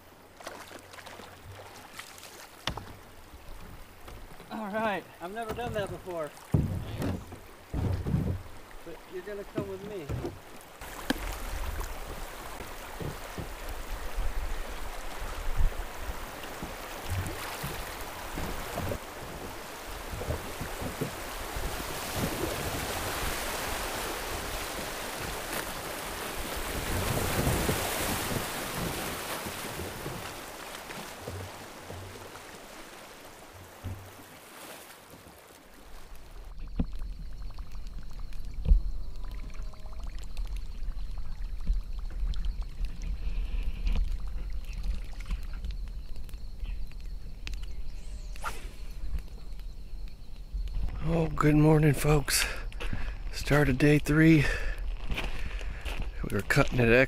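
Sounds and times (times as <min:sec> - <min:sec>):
river water rushing: 0:00.0 - 0:36.5
knocks against boat: 0:05.4 - 0:08.5, 0:09.6 - 0:10.4, 0:12.6 - 0:13.6, 0:33.8 - 0:34.2.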